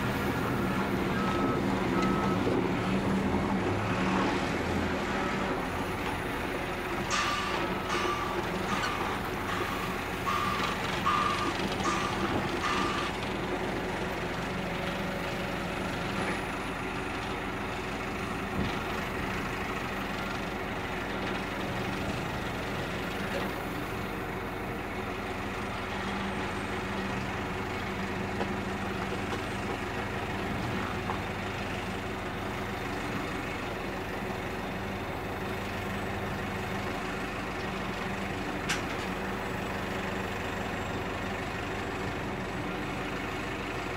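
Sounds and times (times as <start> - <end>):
diesel engine running: 0.0 - 43.9
reversing alarm beeps: 0.3 - 2.6, 7.3 - 13.2.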